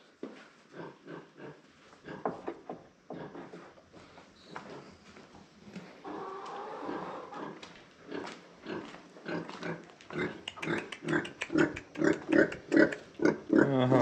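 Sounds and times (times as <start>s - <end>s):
pig grunting: 0.7s - 2.4s, 6.0s - 14.0s.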